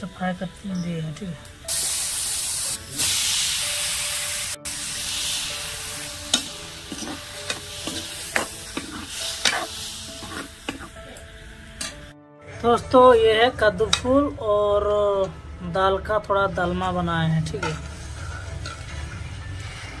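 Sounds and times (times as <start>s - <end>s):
hot oil sizzling: 0.0s - 12.2s
steel ladle scraping metal pan: 6.3s - 11.0s.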